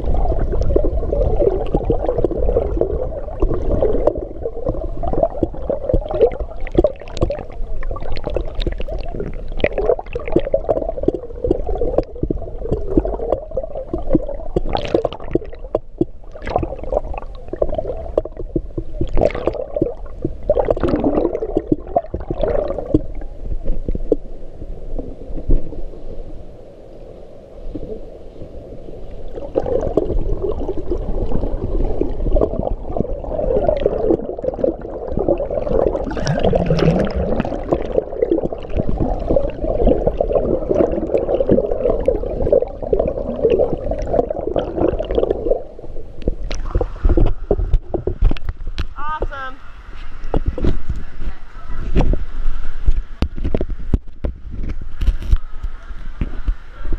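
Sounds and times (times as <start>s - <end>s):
muffled underwater gurgling: 0.0s - 26.1s, 27.7s - 56.9s.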